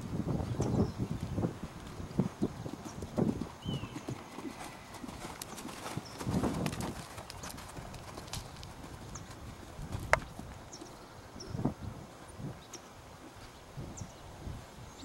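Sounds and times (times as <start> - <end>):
horse hoofbeats on dirt: 0.0 - 11.0.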